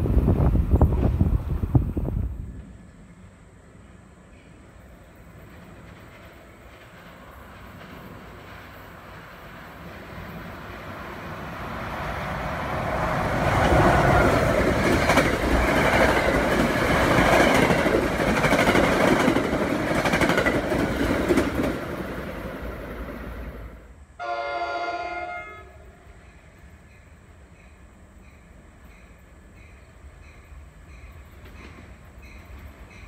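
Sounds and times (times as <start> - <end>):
train rumble passing: 0.0 - 33.0
clickety-clack of wheels on rails: 5.2 - 23.5, 26.2 - 33.0
train horn blast: 24.2 - 26.2.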